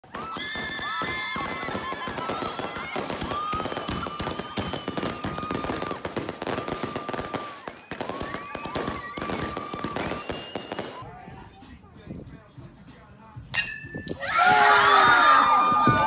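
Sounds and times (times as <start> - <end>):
firework spraying and crackling: 0.0 - 11.0
excited voices: 14.2 - 16.0.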